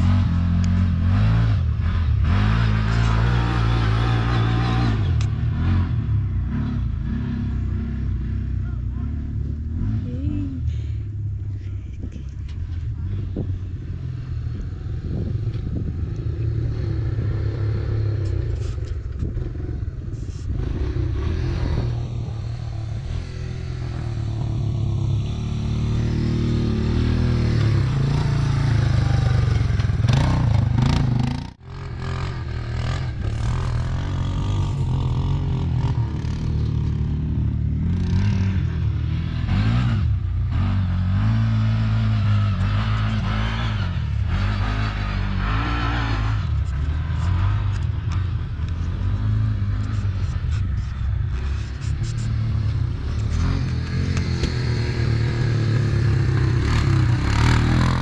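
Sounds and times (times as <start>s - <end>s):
engine running: 0.0s - 58.0s
vehicle rattling: 14.5s - 38.6s.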